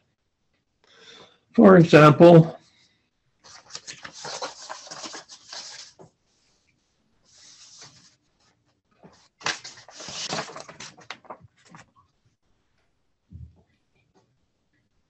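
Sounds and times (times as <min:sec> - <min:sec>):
rustling handling noises: 0:03.4 - 0:12.2.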